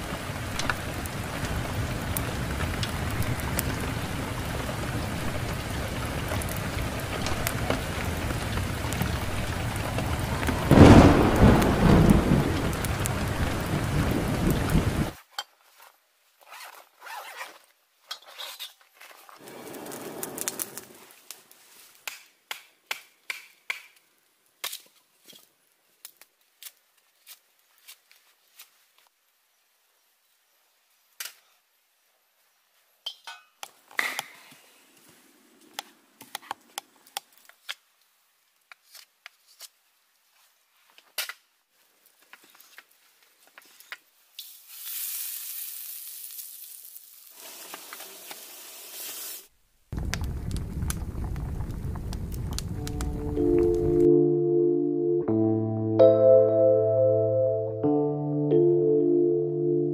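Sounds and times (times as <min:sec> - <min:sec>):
food sizzling in a pan: 0:44.3 - 0:49.6
music: 0:52.8 - 0:59.9.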